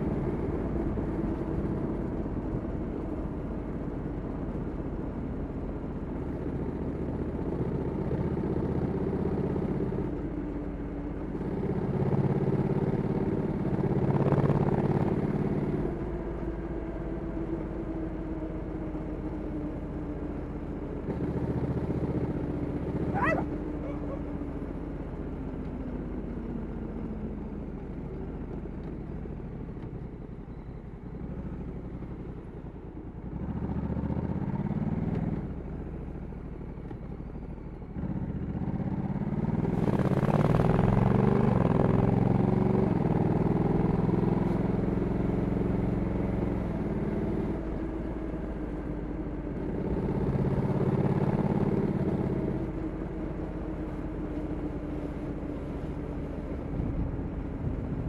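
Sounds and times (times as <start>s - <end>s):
motorcycle engine: 21.1s - 24.6s.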